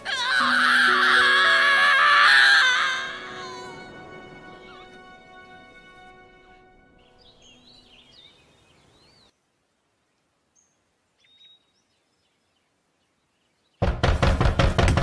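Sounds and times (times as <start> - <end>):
birds chirping: 0.0 - 9.4, 10.0 - 13.9
loud knocking on a door: 13.8 - 15.0.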